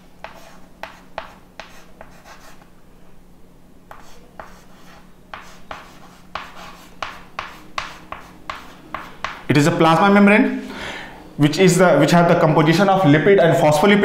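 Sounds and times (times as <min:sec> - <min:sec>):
chalk writing on a chalkboard: 0:00.0 - 0:02.7, 0:03.9 - 0:09.5.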